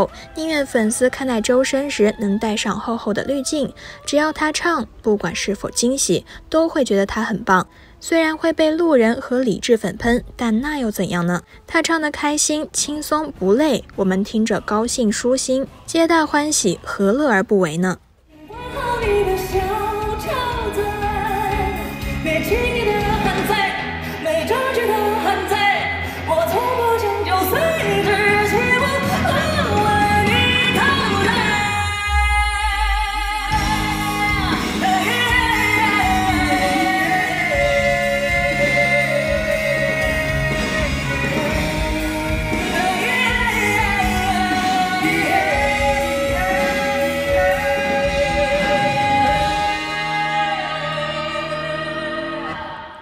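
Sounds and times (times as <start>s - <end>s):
backing music: 18.3s - 53.0s
live pop song with band: 18.4s - 53.0s
man singing pop melody: 35.9s - 52.1s.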